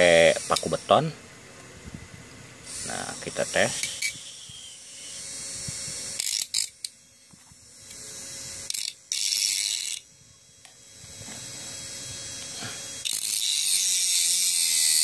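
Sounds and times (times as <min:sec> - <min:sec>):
small motor running: 0:02.6 - 0:15.0
grinder cutting into nail: 0:02.7 - 0:07.0, 0:07.8 - 0:15.0.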